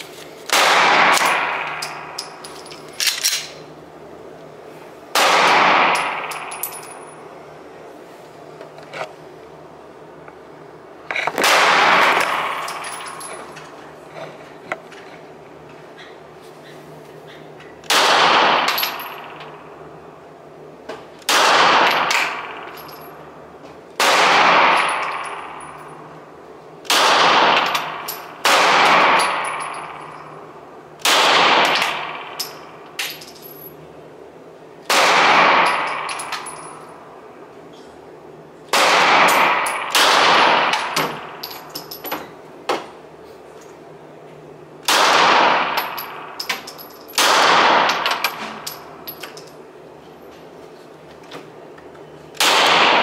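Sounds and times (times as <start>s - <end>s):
pistol shots echoing: 0.5s - 2.4s, 5.1s - 7.0s, 11.4s - 13.2s, 17.9s - 19.7s, 21.3s - 22.9s, 24.0s - 26.0s, 26.9s - 32.8s, 34.9s - 36.8s, 38.7s - 41.5s, 44.8s - 46.5s, 47.2s - 48.4s, 52.4s - 53.0s
brass casings tinkling: 1.2s - 3.6s, 5.9s - 7.3s, 12.4s - 13.7s, 29.1s - 30.5s, 35.6s - 37.1s, 39.4s - 42.3s.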